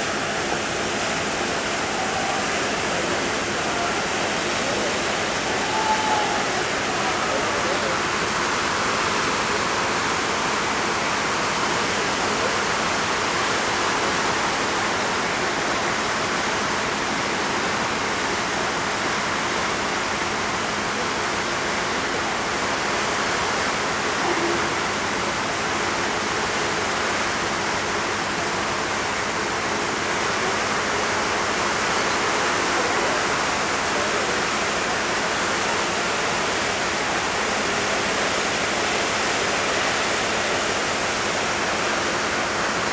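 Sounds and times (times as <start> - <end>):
seawater rushing from propellers: 0.0 - 42.9.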